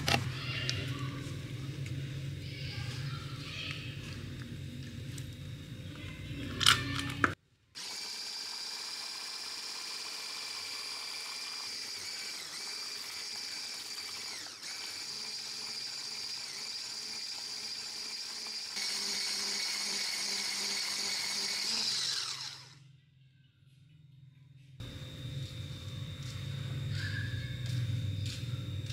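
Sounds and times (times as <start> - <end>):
electric mixer motor whine: 7.8 - 22.8.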